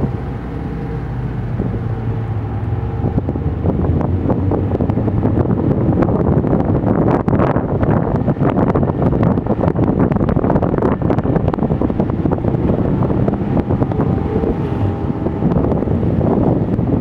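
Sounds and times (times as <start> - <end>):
drone of engines and tyres: 0.0 - 17.0
wind buffeting microphone: 0.0 - 17.0
faint engine note: 10.8 - 17.0.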